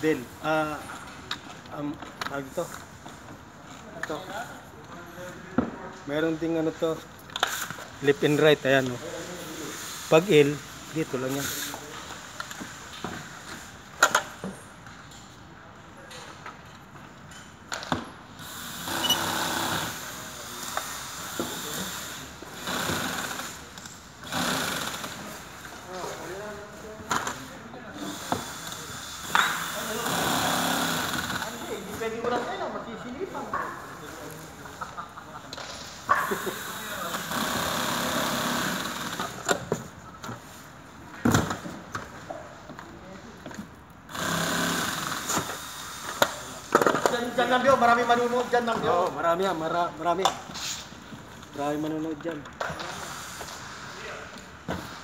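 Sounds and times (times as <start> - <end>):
power screwdriver running: 18.6 - 20.2, 36.7 - 39.4, 44.1 - 46.2.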